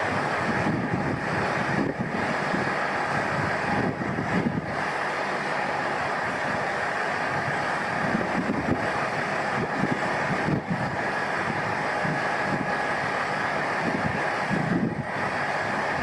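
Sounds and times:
diesel railcar idling: 0.0 - 16.0
wind buffeting microphone: 0.0 - 16.0.

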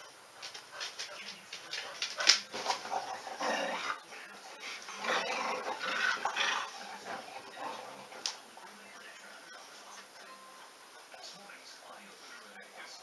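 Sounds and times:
dog vocalizing: 1.8 - 8.8.

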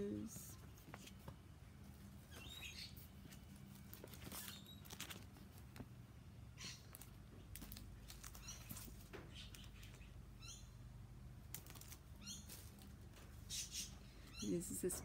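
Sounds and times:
plastic packets crinkling: 3.6 - 5.8, 6.8 - 10.0.

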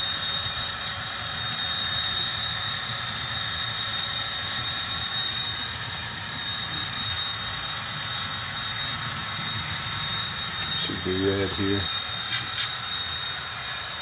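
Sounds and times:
model locomotive engine sound: 0.0 - 14.0
model wagons rolling on track: 0.0 - 14.0
high-pitched tone: 3.5 - 14.0.

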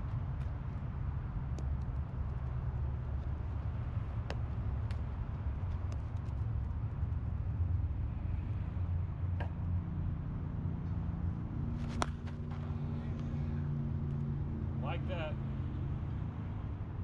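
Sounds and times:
bat cracking a ball: 11.8 - 12.8.

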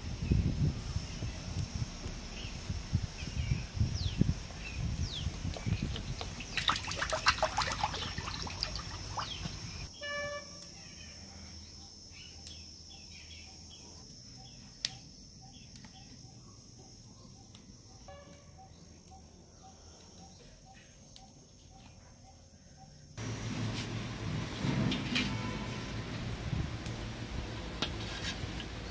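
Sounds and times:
high cricket-like whine: 7.6 - 23.8.

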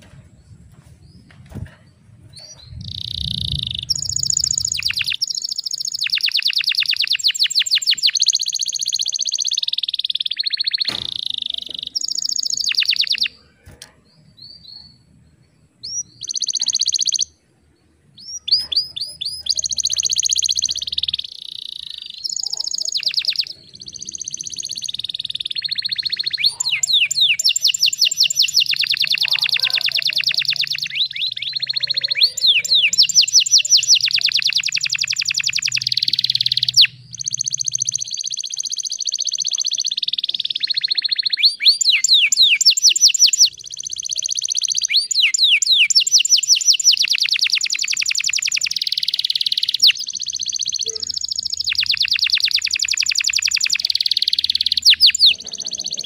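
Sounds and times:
canary singing fast trills: 2.2 - 17.4, 18.0 - 56.0.

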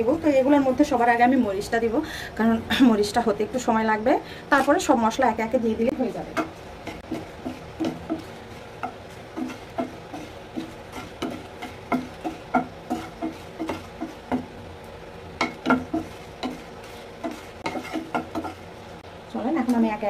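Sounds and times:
wooden spatula knocking on a pan: 6.3 - 14.6, 15.4 - 16.6, 17.2 - 18.6.

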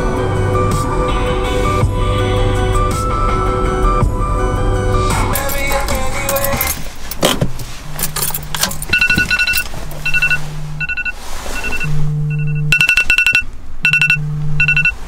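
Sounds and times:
background music: 0.0 - 7.1
clicks and rattles: 5.4 - 10.1
phone alarm beeping: 8.6 - 15.0
phone vibrating: 8.8 - 15.0.

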